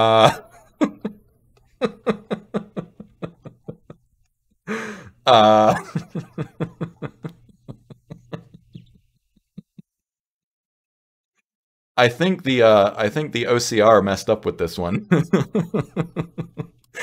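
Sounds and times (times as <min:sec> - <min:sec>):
man laughing: 0:00.0 - 0:10.0, 0:14.8 - 0:17.0.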